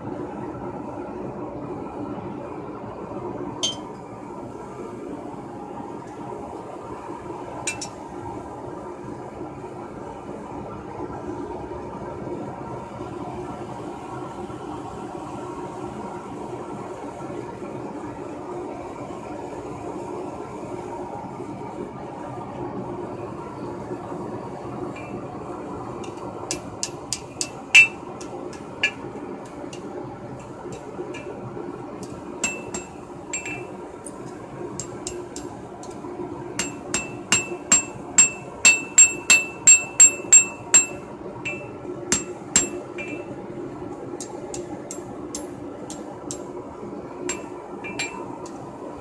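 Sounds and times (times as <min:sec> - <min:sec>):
hammer striking steel on anvil: 0:03.6 - 0:03.9, 0:07.7 - 0:07.9, 0:26.1 - 0:29.0, 0:32.0 - 0:33.7, 0:34.8 - 0:36.0, 0:36.6 - 0:43.3, 0:44.2 - 0:46.5, 0:47.3 - 0:48.3
steady low hum: 0:16.9 - 0:49.0.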